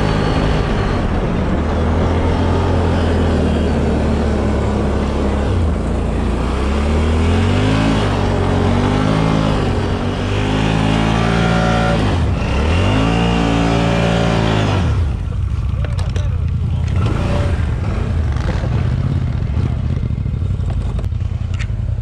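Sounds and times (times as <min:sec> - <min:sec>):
atv engine revving: 0:00.0 - 0:21.7.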